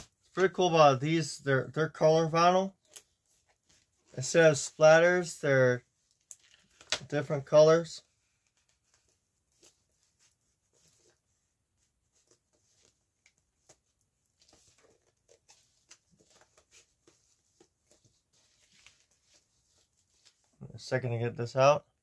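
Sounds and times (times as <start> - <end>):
hands handling record packaging: 6.0 - 7.2, 8.2 - 20.6.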